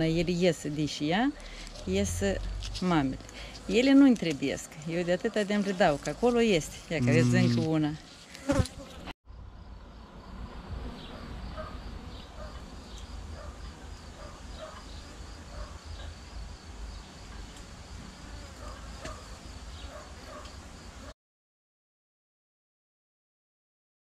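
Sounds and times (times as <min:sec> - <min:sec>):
honeybees buzzing: 0:00.0 - 0:09.1.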